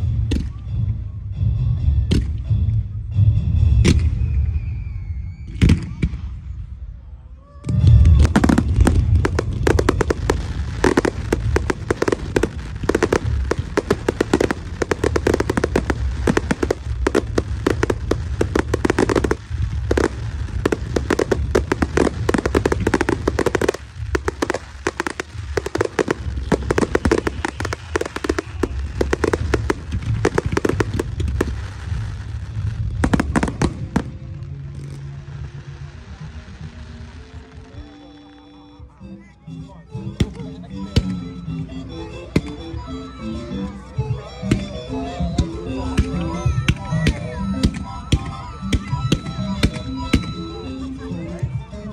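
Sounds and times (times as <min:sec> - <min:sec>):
fireworks bangs: 0:07.7 - 0:38.4
fireworks launching and bursting: 0:07.7 - 0:38.5, 0:45.4 - 0:50.6.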